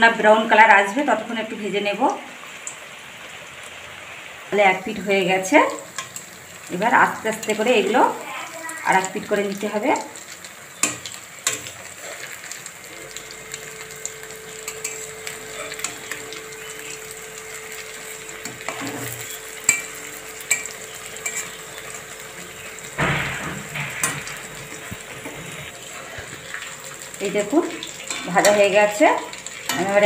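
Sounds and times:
patties sizzling in hot oil: 0.0 - 30.0
spatula scraping metal pan: 18.7 - 19.8, 20.5 - 21.6.

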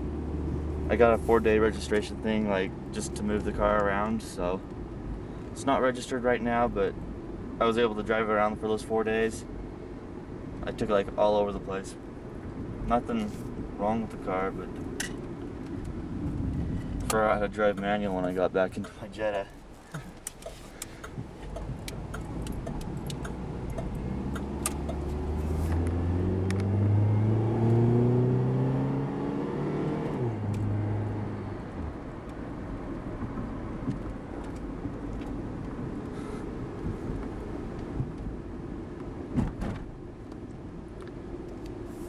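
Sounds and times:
road noise: 0.0 - 42.0
car engine accelerating: 20.2 - 38.9.

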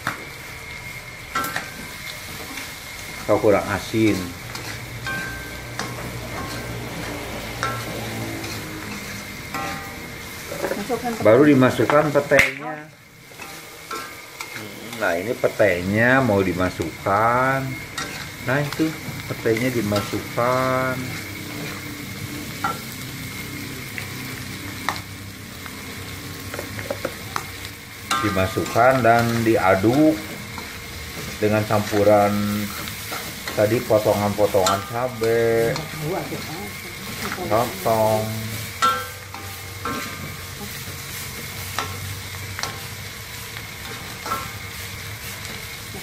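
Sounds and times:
food sizzling in a wok: 0.0 - 46.0
spatula scraping and knocking wok: 0.0 - 46.0.

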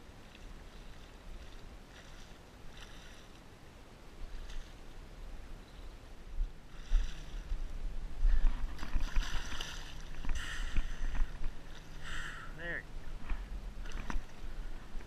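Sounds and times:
wind rumbling on microphone: 0.0 - 15.0
shark splashing in shallow water: 8.4 - 12.3.

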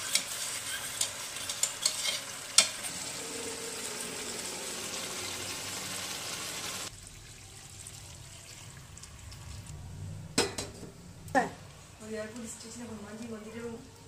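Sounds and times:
chicken sizzling in a frying pan: 0.0 - 6.9
water pouring into a pan: 2.9 - 9.7.

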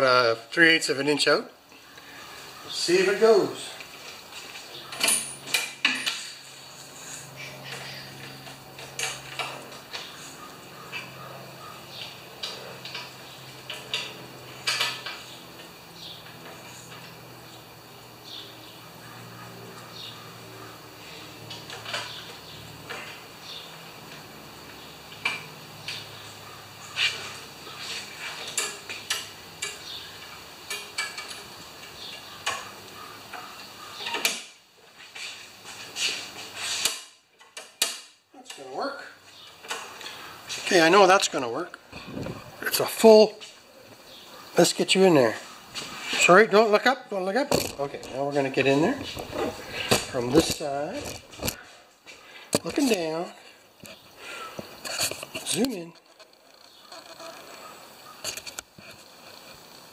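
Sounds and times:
steady low hum: 0.0 - 34.0, 38.3 - 59.9
sharp clicks and metal clinks: 4.9 - 6.4, 12.0 - 15.7, 28.5 - 32.7.

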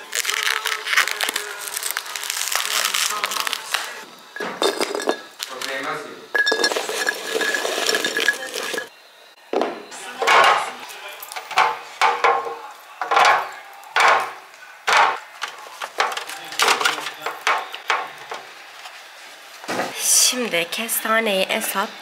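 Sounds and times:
walnuts rattling into glass jar: 4.4 - 8.9.

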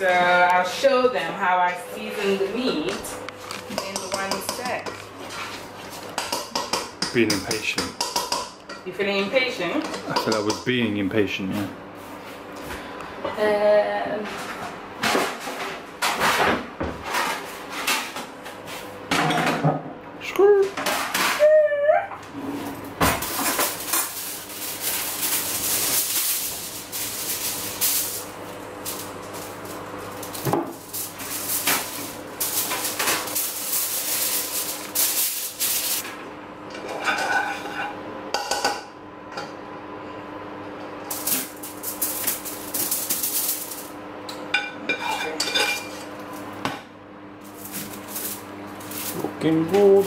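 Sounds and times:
spatula scraping metal pot: 36.9 - 38.0.

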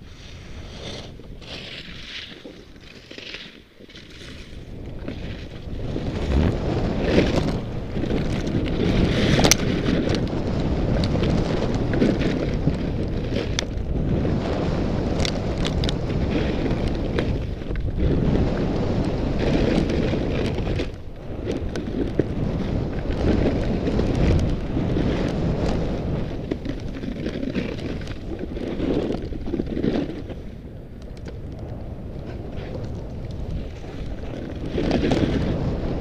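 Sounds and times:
wind buffeting microphone: 0.0 - 3.1, 3.8 - 36.0
skis hissing and scraping on snow: 0.0 - 13.3.

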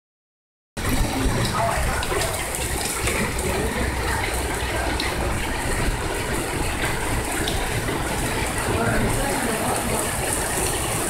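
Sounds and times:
heavy rain on pavement: 0.8 - 11.0.

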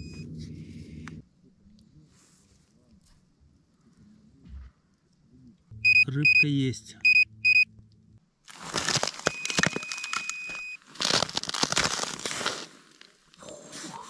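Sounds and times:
high electronic beep: 5.7 - 7.7, 9.3 - 10.8
footsteps crunching on snow: 8.5 - 13.2.

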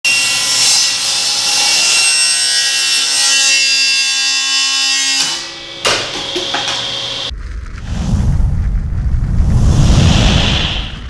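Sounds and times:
table saw cutting board: 0.1 - 7.3.

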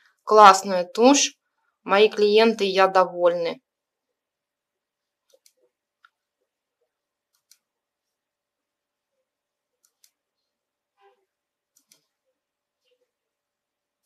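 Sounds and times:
computer mouse clicks: 5.2 - 6.2, 7.2 - 7.7, 9.8 - 10.2, 11.1 - 12.2.

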